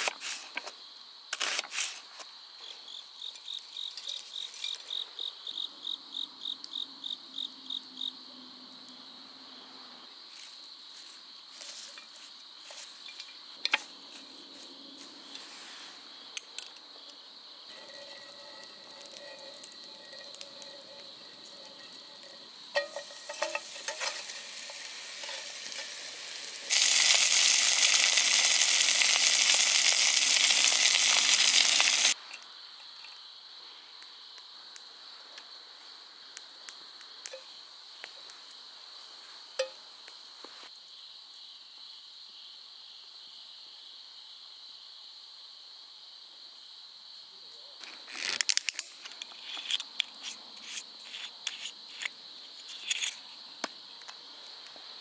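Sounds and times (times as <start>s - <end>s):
crickets chirping: 0.0s - 55.0s
food sizzling in a hot pan: 17.7s - 32.2s.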